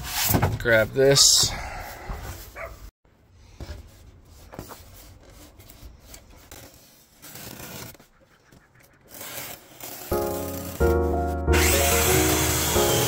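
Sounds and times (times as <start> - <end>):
cardboard scraping over foam board: 3.6 - 8.1.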